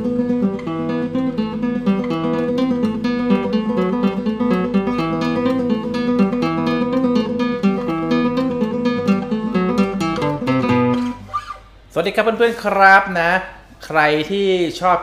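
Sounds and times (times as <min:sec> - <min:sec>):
fingerstyle nylon-string guitar: 0:00.0 - 0:11.8.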